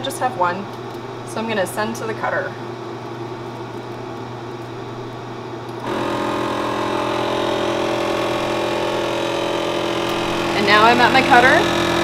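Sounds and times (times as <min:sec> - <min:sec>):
low steady hum: 0:00.0 - 0:12.0
laser cutter mechanical hum: 0:05.8 - 0:12.0.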